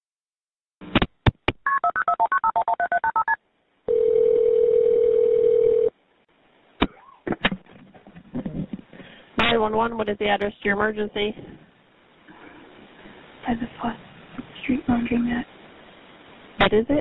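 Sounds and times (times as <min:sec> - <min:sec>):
phone ringing tone: 0:01.7 - 0:05.9.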